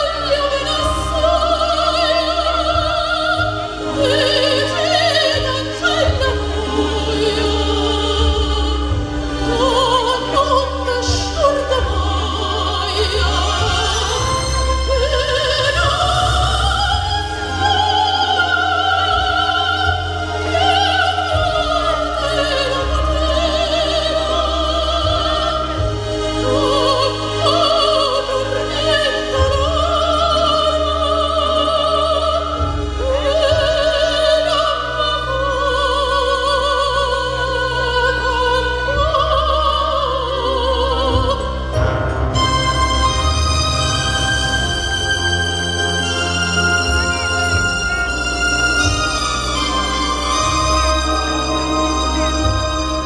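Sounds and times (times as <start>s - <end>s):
woman singing operatically: 0.0s - 41.8s
instrumental accompaniment: 0.0s - 53.0s.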